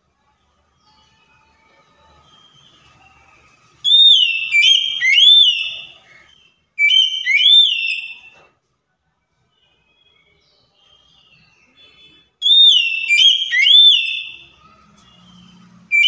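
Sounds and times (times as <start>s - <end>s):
bird twittering: 3.8s - 8.3s, 11.0s - 16.0s
bird whistling loud phrases: 3.8s - 8.3s, 12.4s - 14.4s.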